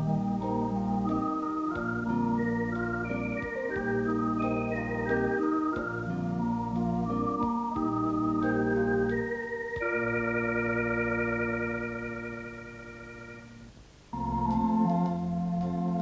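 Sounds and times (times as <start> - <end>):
organ music: 0.0 - 16.0.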